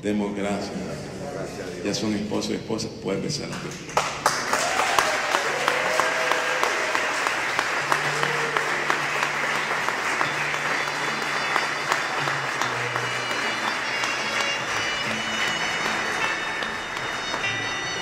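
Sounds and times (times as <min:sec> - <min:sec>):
crowd applauding: 0:03.5 - 0:18.0
crowd cheering: 0:04.1 - 0:18.0.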